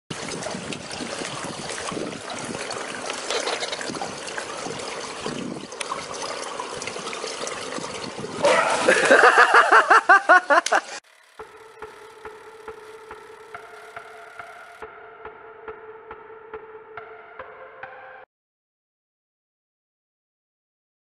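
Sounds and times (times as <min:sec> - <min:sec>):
pool water lapping and sloshing: 0:00.1 - 0:11.4.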